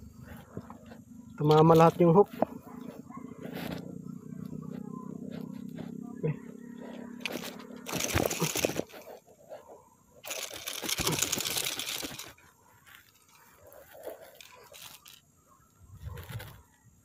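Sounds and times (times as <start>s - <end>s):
loud crunching scraping: 4.7s - 15.2s.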